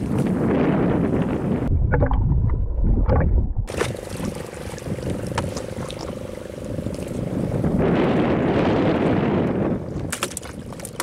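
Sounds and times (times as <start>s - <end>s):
sea noise: 0.0s - 11.0s
wind rumbling on microphone: 0.0s - 11.0s
boat engine hum: 3.6s - 11.0s.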